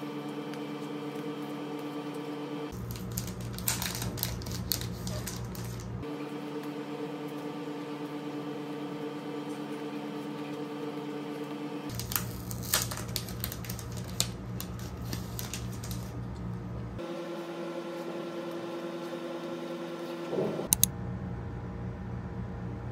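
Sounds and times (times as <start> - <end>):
steady hum: 0.0 - 22.9
plastic packaging crinkling and clicking: 2.7 - 6.0, 11.9 - 16.2.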